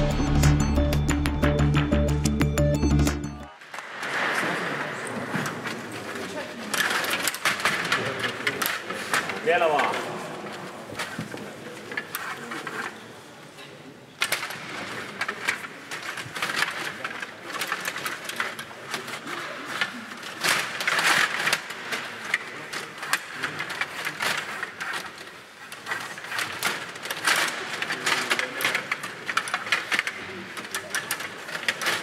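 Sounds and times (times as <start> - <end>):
table hockey rods clattering: 14.2 - 32.0
puck striking sticks and boards: 14.3 - 32.0.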